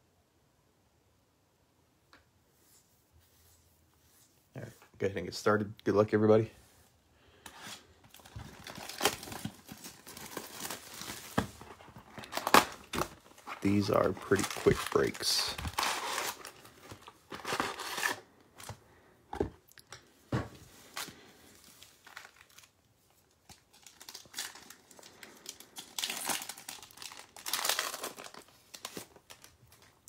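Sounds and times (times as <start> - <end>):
foil packs crinkling: 8.1 - 18.8, 20.8 - 30.0
foil wrapper tearing: 12.2 - 18.2, 23.4 - 30.0.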